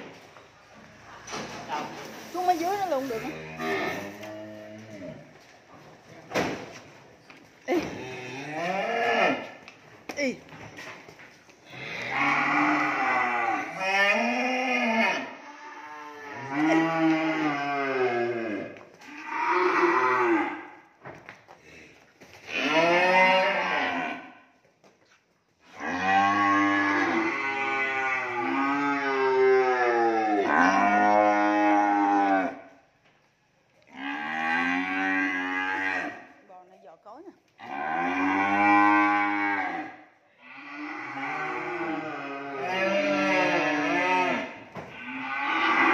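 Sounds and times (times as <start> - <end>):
cattle mooing: 2.9 - 5.3, 7.8 - 9.5, 11.7 - 20.7, 22.5 - 24.3, 25.7 - 32.6, 33.9 - 36.2, 37.6 - 45.9.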